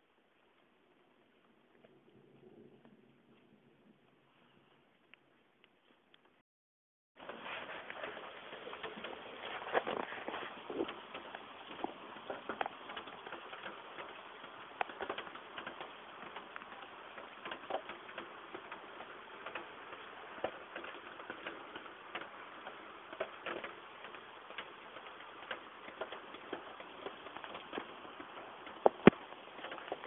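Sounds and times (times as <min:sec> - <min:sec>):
heavy rain falling: 0:07.2 - 0:30.0.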